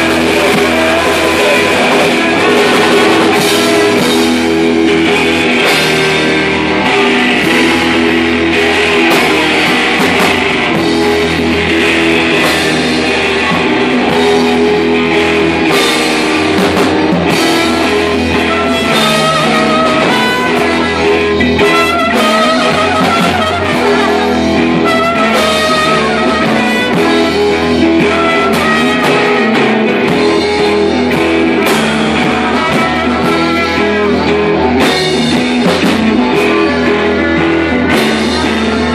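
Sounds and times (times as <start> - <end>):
rock band playing: 0.0 - 38.9
trumpet wavering line: 17.6 - 29.6.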